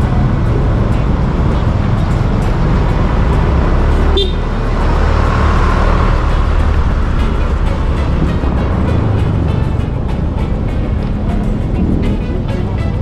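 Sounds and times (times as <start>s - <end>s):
motorcycle engine rumble: 0.0s - 13.0s
horn beep: 4.1s - 4.6s.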